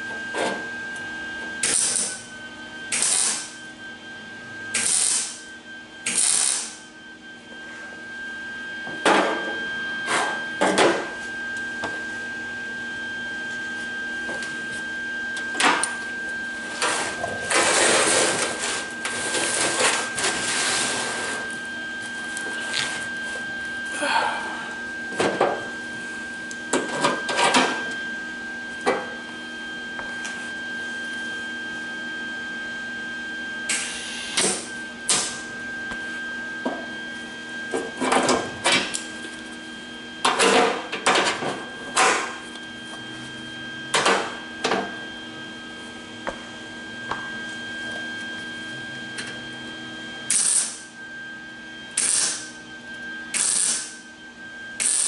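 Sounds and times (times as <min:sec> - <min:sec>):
steady high hum: 0:00.0 - 0:55.0
welding bursts: 0:01.6 - 0:02.1, 0:02.9 - 0:03.5, 0:04.8 - 0:05.4, 0:06.1 - 0:06.8, 0:50.3 - 0:50.8, 0:52.0 - 0:52.5, 0:53.4 - 0:53.9, 0:54.8 - 0:55.0.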